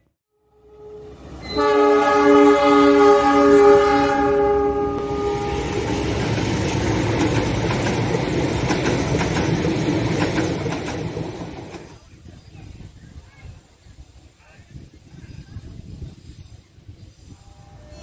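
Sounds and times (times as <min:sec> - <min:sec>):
locomotive horn chord: 0:00.3 - 0:06.2
train rumbling past: 0:00.5 - 0:12.2.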